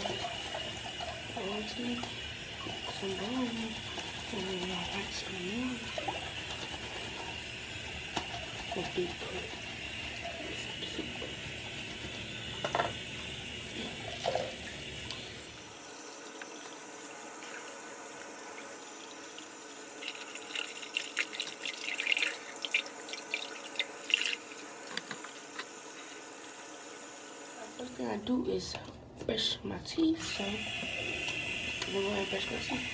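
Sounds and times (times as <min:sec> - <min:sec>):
water splashing: 0:00.0 - 0:12.6
tap water running: 0:00.0 - 0:32.9.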